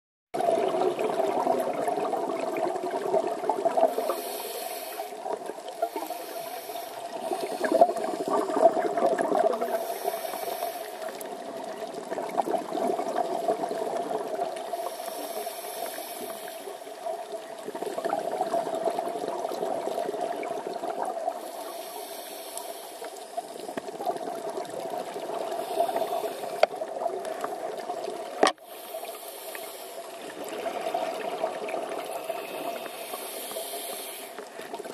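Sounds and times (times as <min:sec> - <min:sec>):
regulator hiss: 0:03.9 - 0:08.4, 0:09.6 - 0:11.3, 0:14.7 - 0:17.0, 0:21.4 - 0:23.7, 0:25.5 - 0:26.7, 0:28.6 - 0:30.3, 0:32.0 - 0:34.7
bubbling exhalations: 0:07.0 - 0:10.5.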